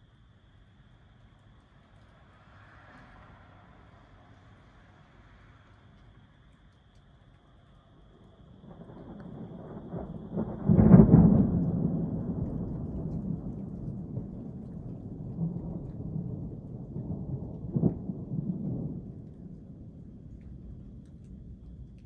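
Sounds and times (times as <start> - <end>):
thunder rumble: 8.0 - 22.0
thunder crack: 8.6 - 22.0.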